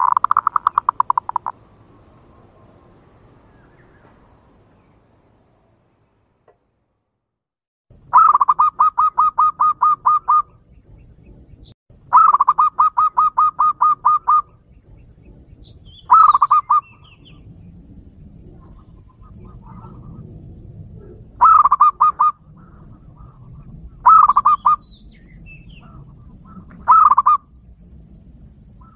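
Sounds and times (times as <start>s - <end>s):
dove rapid cooing: 0.0s - 1.6s, 12.1s - 14.5s, 18.4s - 20.3s, 20.9s - 24.8s, 25.8s - 27.4s.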